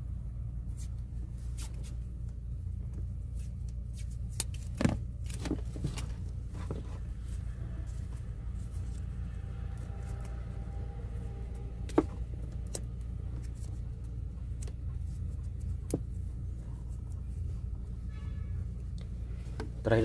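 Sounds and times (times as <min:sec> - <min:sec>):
steady low rumble: 0:00.0 - 0:20.0
hands taping electrical wires: 0:02.9 - 0:07.3, 0:11.3 - 0:17.4.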